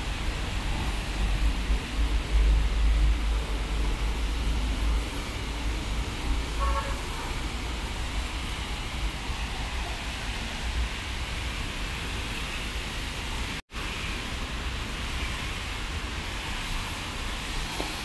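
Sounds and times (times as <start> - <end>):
car tyres on wet road: 0.0 - 18.0
rain: 0.0 - 18.0.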